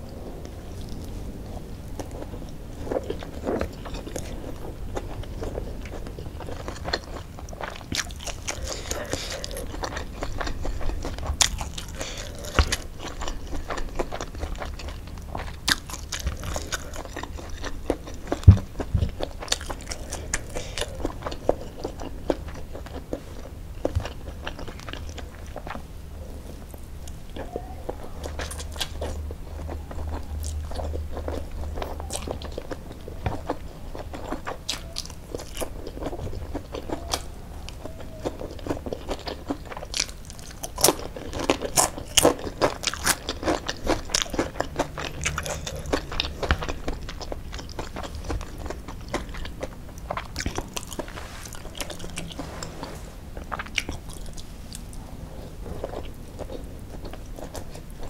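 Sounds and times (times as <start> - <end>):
chewing and crunching food: 0.0 - 58.0.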